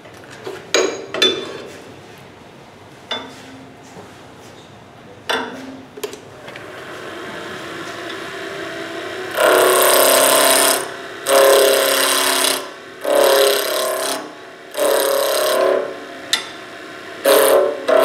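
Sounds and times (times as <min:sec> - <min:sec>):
lathe motor humming: 0:06.4 - 0:18.0
lathe tool cutting wood: 0:06.6 - 0:18.0.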